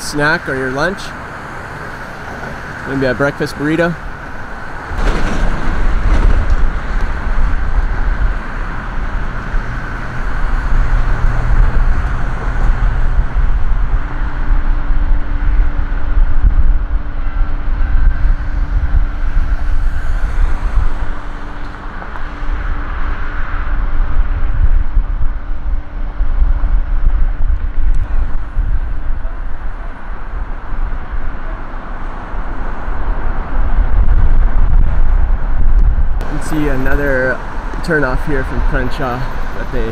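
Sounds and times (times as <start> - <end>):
road traffic passing: 0.0 - 39.9
steady hum: 0.0 - 39.9.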